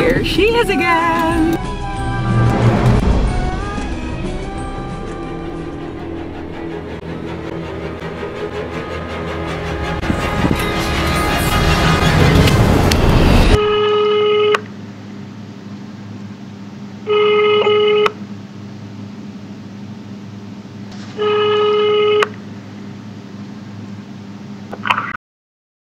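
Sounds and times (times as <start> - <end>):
low hum: 0.0 - 13.8
telephone ringback tone: 17.1 - 18.1.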